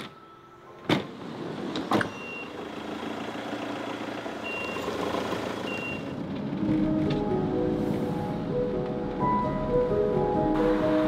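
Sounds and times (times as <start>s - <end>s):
road noise: 0.0s - 11.0s
van engine running: 2.4s - 8.8s.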